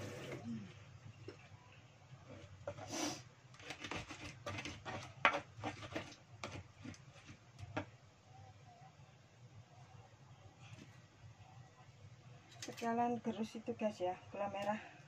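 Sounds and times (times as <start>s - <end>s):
pestle grinding paste in mortar: 3.6s - 7.8s.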